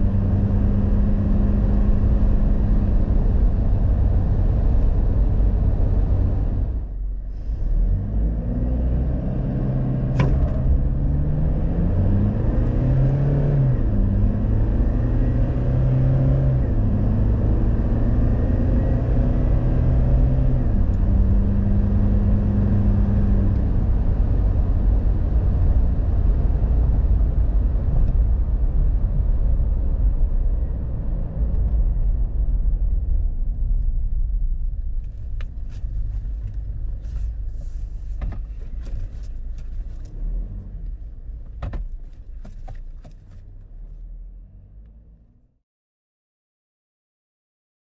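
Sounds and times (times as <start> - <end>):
diesel engine downshifting: 0.0 - 45.5
tyre and road rumble: 9.8 - 44.9.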